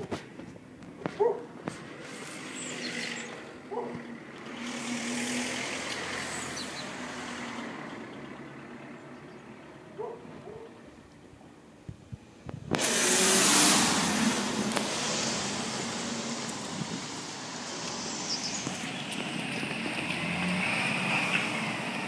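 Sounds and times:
car passing by: 1.7 - 8.8, 12.7 - 22.0.

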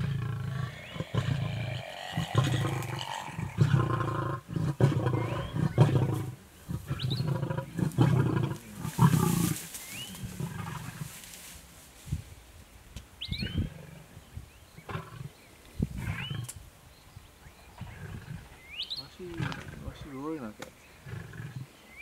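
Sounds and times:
lions growling: 0.0 - 11.2, 17.8 - 20.1, 21.0 - 21.7.

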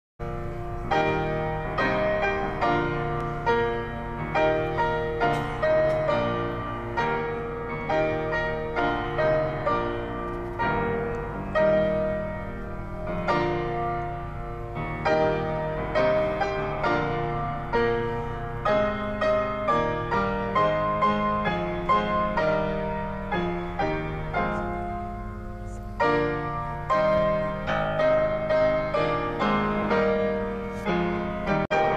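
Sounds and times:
solo grand piano piece: 0.2 - 31.9.

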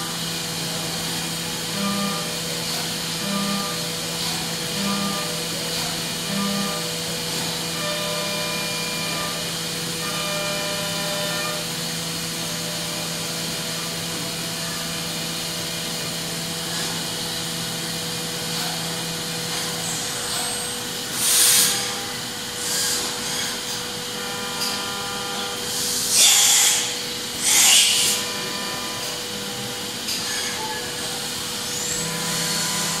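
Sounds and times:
milling machine whine: 0.0 - 33.0.

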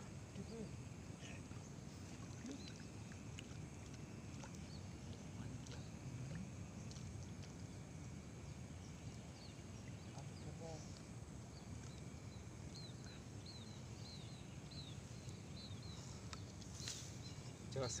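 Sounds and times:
low rumble and hiss: 0.0 - 18.0
small ticks: 2.3 - 7.7, 14.7 - 17.0.

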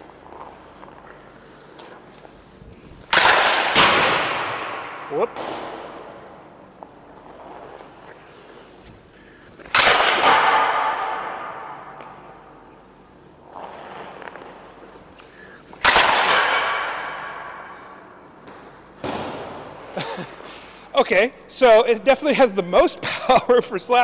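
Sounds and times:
hockey stick slap shot: 3.0 - 6.1, 9.6 - 12.5, 15.8 - 19.7.

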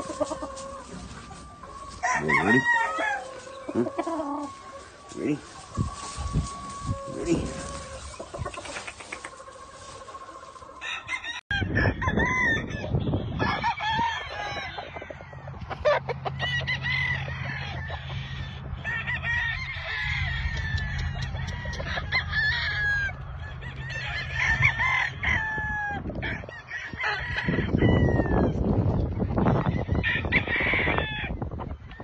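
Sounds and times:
chickens clucking: 0.0 - 11.8, 14.4 - 16.6
roosters crowing: 0.0 - 32.0.

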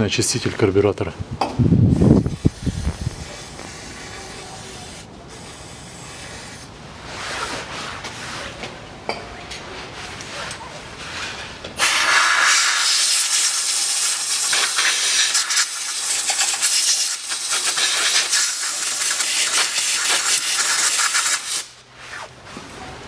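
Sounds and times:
aerosol spray hissing: 1.9 - 6.7, 11.8 - 21.8.

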